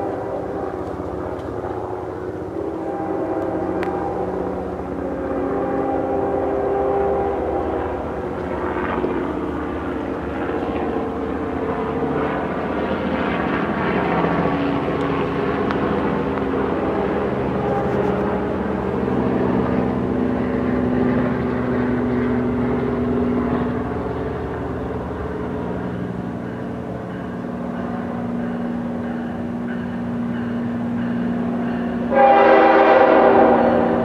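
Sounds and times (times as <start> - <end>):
train horn blast: 0.0 - 1.0, 1.8 - 8.3, 31.9 - 34.0
locomotive engine drone: 0.0 - 34.0.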